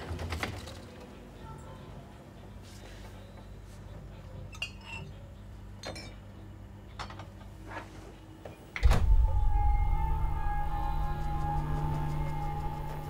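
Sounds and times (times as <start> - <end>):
loud low drone: 8.8 - 13.0.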